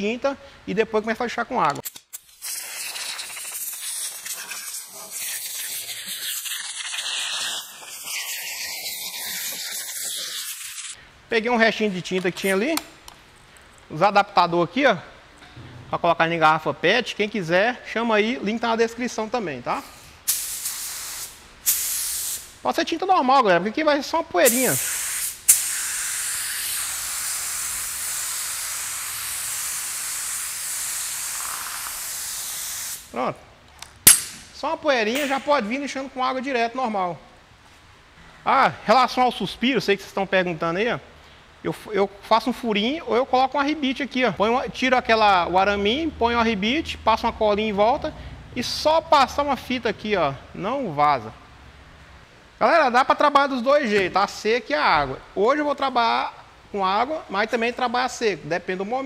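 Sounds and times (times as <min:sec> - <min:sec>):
compressed-air blow gun hissing: 0:02.3 - 0:11.0, 0:24.5 - 0:33.1.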